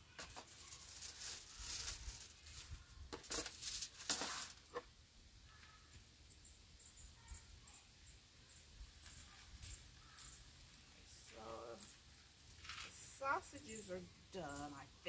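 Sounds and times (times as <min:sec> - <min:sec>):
aluminium foil crinkling: 0:00.0 - 0:04.9, 0:08.7 - 0:15.0.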